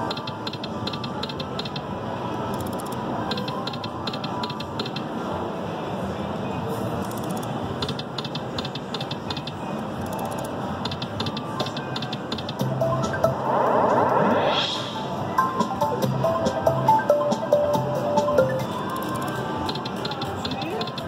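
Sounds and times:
slot machine electronic clicks: 0:00.0 - 0:01.9, 0:02.5 - 0:05.2, 0:07.0 - 0:13.4, 0:15.4 - 0:21.0
steady background din: 0:00.0 - 0:21.0.

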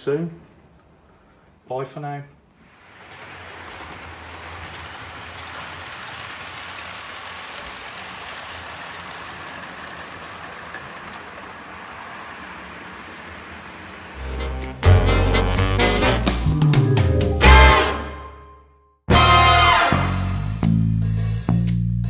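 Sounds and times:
model trains running: 0:02.6 - 0:15.6.

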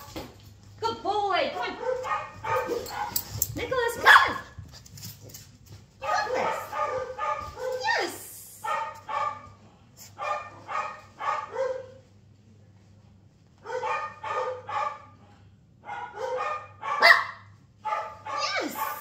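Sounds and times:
dog barking: 0:01.7 - 0:03.3, 0:04.0 - 0:04.6, 0:06.0 - 0:09.6, 0:10.2 - 0:12.0, 0:13.6 - 0:15.2, 0:15.8 - 0:19.0.

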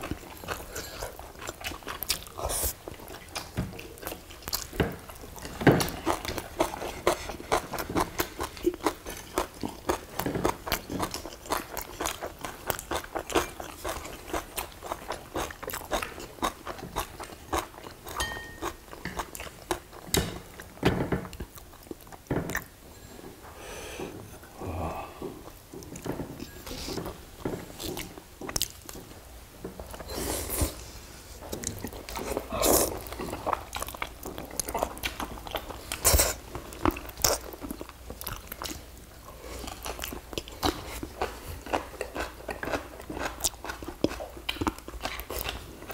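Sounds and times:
people chewing: 0:00.0 - 0:45.9
chopsticks tapping dishes: 0:18.1 - 0:19.2.

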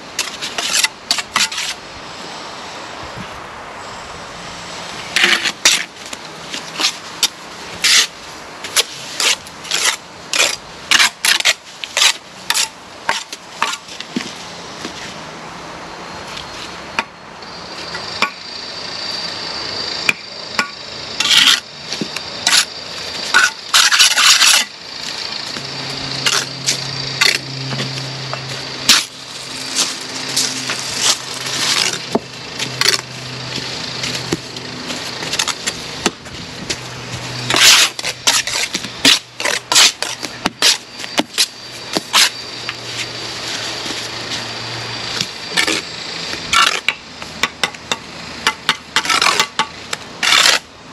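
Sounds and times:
mortar scraping: 0:00.2 - 0:01.8, 0:05.2 - 0:15.2, 0:20.6 - 0:44.5, 0:48.5 - 0:50.7.

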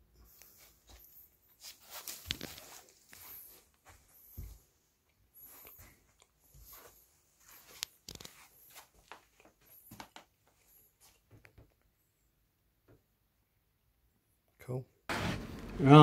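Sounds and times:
soft handling rustles and clicks: 0:00.2 - 0:04.7, 0:05.4 - 0:11.9.

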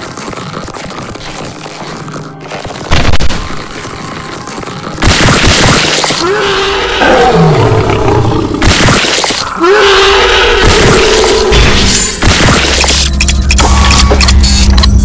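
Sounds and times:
monster roar: 0:06.2 - 0:08.6, 0:09.5 - 0:11.6.

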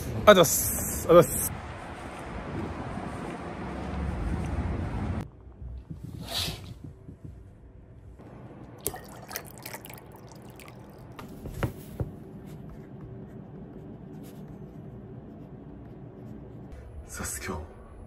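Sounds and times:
pen scratching on paper: 0:12.3 - 0:16.8.

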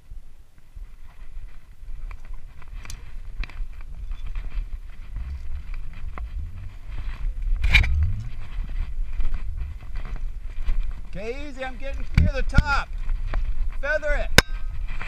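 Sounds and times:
climbing gear clicks and scrapes: 0:01.0 - 0:13.9
low rumble: 0:04.6 - 0:11.2.

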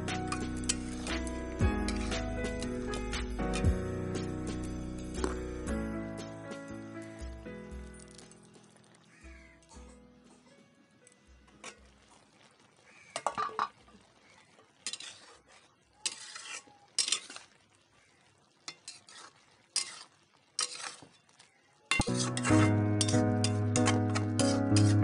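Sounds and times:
metal spatula scraping a pan: 0:00.0 - 0:05.4, 0:11.6 - 0:12.0, 0:13.2 - 0:17.7, 0:18.5 - 0:25.0
background music: 0:00.0 - 0:11.5, 0:22.0 - 0:25.0.

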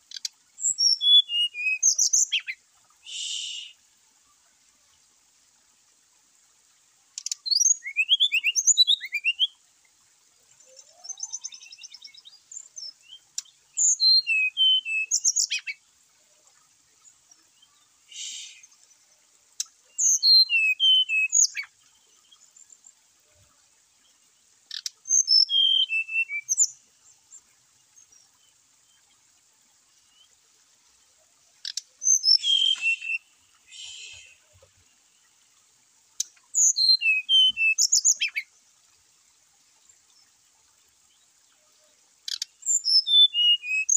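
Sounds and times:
bird whistled song: 0:00.6 - 0:03.8, 0:07.2 - 0:09.6, 0:10.8 - 0:15.8, 0:18.1 - 0:18.7, 0:20.0 - 0:21.7, 0:24.8 - 0:26.8, 0:31.7 - 0:34.5, 0:36.5 - 0:38.5, 0:42.3 - 0:43.9.

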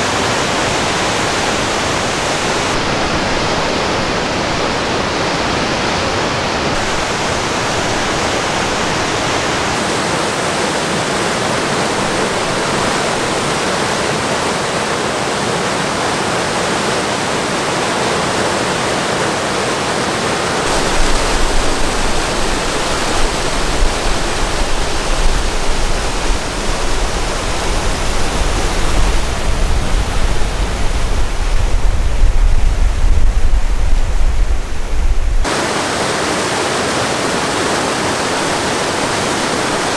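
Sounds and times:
whitewater rushing over boulders: 0:00.0 - 0:39.9
deep rumble: 0:20.7 - 0:35.5.

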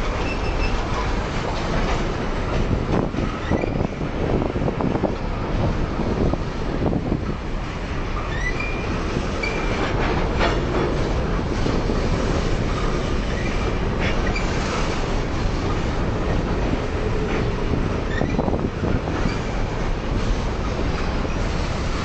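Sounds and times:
train wheels rumbling on rail: 0:00.0 - 0:22.0
high wheel squeals: 0:00.1 - 0:01.1, 0:08.2 - 0:09.8, 0:18.0 - 0:18.6.

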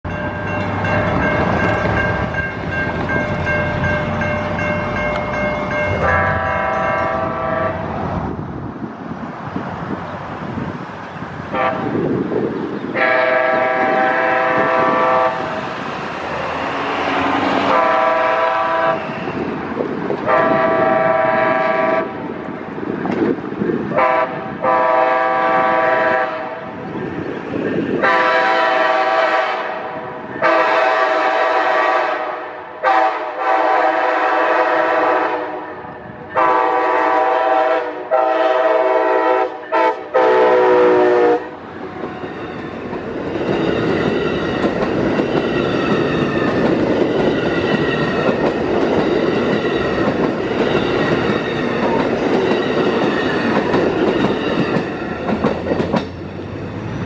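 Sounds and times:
train wheels clacking on rails: 0:00.0 - 0:07.4, 0:42.0 - 0:57.0
locomotive air horn blasts: 0:06.0 - 0:07.9, 0:11.5 - 0:12.0, 0:13.0 - 0:15.6, 0:17.6 - 0:19.1, 0:20.2 - 0:22.2, 0:23.9 - 0:26.8, 0:28.0 - 0:35.8, 0:36.4 - 0:41.6.

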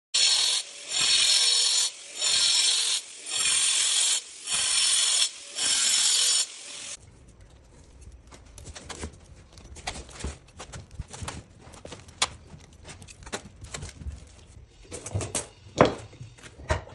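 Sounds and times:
angle grinder cutting concrete: 0:00.2 - 0:07.0.

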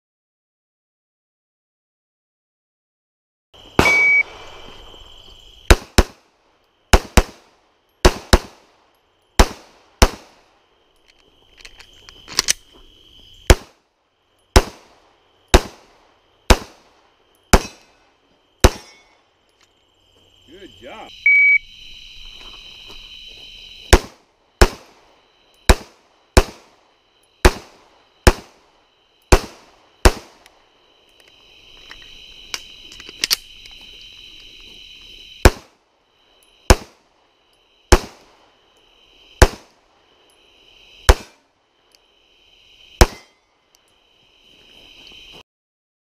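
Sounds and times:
insects trilling: 0:03.6 - 0:45.4
shot timer beep: 0:03.8 - 0:04.3, 0:21.3 - 0:21.6
pistol shots: 0:03.8 - 0:04.5, 0:05.7 - 0:06.2, 0:06.9 - 0:08.7, 0:09.4 - 0:10.4, 0:13.5 - 0:13.8, 0:14.6 - 0:15.9, 0:16.5 - 0:16.9, 0:17.5 - 0:18.0, 0:18.6 - 0:19.1, 0:23.9 - 0:25.0, 0:25.7 - 0:26.8, 0:27.4 - 0:28.6, 0:29.3 - 0:30.5, 0:36.7 - 0:37.0, 0:37.9 - 0:38.4, 0:39.4 - 0:39.7, 0:41.1 - 0:41.4, 0:43.0 - 0:43.3.

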